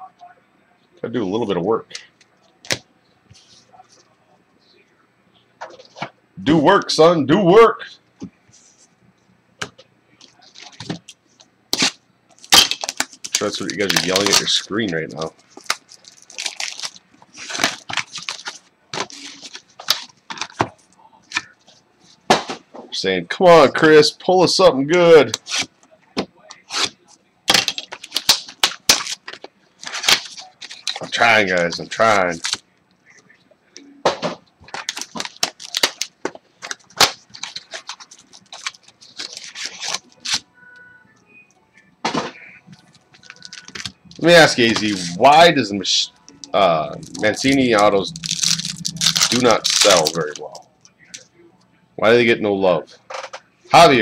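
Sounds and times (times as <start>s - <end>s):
foil wrapper tearing and crinkling: 11.7s - 20.6s, 26.7s - 31.3s, 34.7s - 40.4s, 43.2s - 45.2s, 47.0s - 50.6s.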